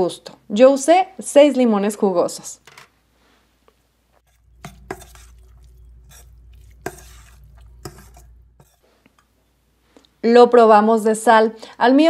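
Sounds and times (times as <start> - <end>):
hands stirring fish in metal bowl: 4.2 - 9.4.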